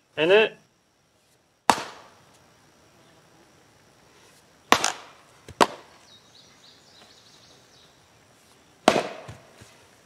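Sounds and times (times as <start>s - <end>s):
axe chopping log: 1.7s - 2.1s, 4.7s - 5.9s, 8.8s - 9.5s.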